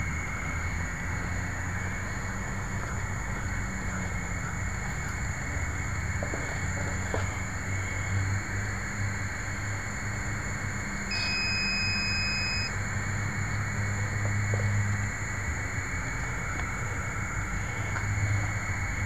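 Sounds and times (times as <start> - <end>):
electrical hum and hiss: 0.0 - 19.0
high beep: 11.1 - 12.7.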